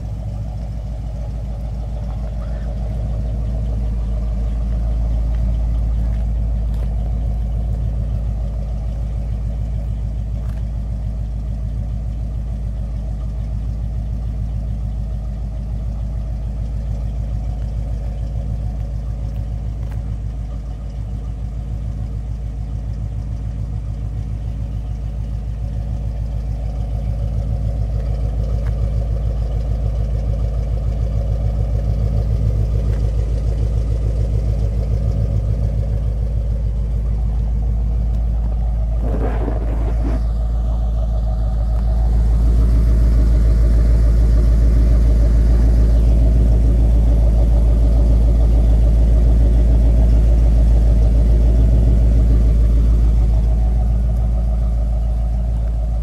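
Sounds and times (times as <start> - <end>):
engine idling exhaust rumble: 0.0 - 56.0
short rush of noise: 39.0 - 40.5.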